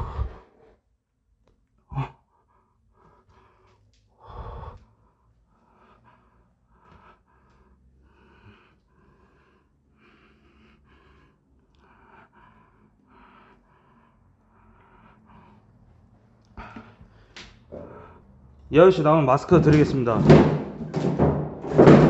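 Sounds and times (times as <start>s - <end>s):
person breathing close to microphone: 0.0s - 0.8s, 1.9s - 18.6s.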